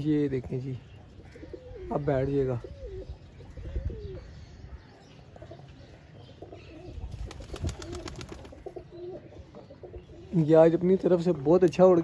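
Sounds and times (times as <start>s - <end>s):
pigeons cooing: 0.9s - 10.5s
wind rumbling on microphone: 3.0s - 4.7s.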